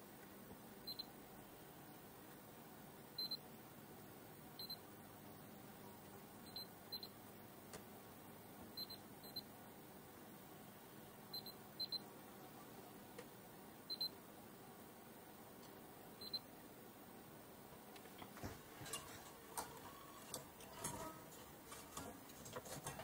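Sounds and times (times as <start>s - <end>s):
faint steady hum: 0.0s - 23.0s
test meter beeps: 0.8s - 1.1s, 3.2s - 3.4s, 4.6s - 4.8s, 6.4s - 7.2s, 8.8s - 9.5s, 11.3s - 12.1s, 13.9s - 14.2s, 16.2s - 16.5s.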